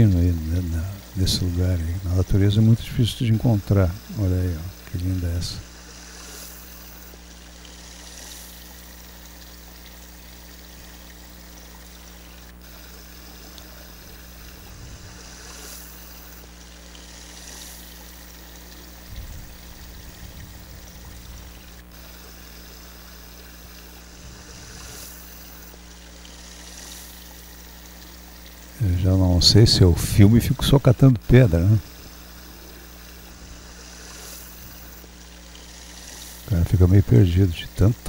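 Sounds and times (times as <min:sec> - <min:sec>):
stream of water running: 0:00.0 - 0:38.0
low rumbles: 0:19.0 - 0:21.9.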